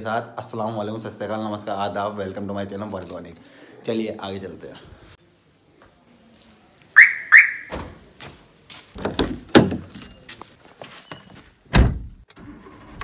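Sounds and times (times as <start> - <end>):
car alarm chirps: 7.0 - 7.8.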